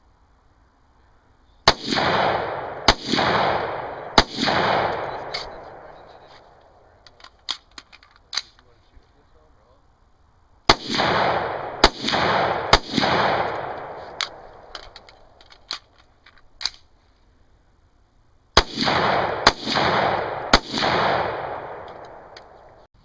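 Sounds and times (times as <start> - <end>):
pistol shots with echo: 1.7 - 6.8, 10.7 - 15.4, 18.6 - 22.6.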